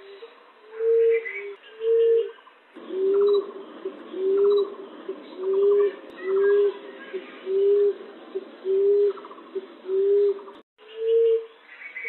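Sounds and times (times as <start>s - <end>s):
dove cooing: 0.0s - 11.5s
bird chirps and trills: 0.0s - 12.0s.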